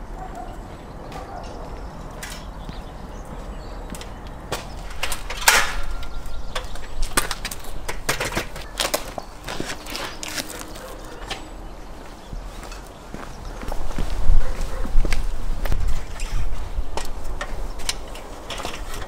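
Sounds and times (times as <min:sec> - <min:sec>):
metal ladder clanking: 0:04.0 - 0:11.5, 0:16.0 - 0:19.0.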